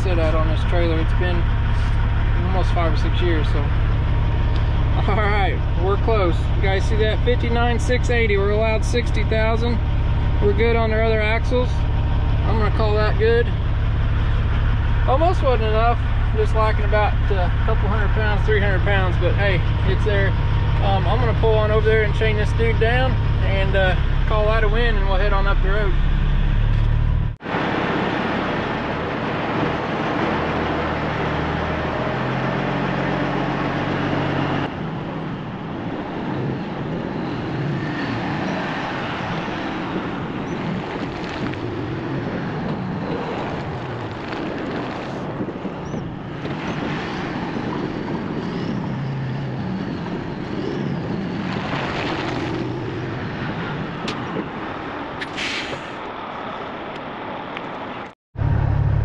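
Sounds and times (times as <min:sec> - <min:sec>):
diesel engine idling: 0:00.0 - 0:27.4.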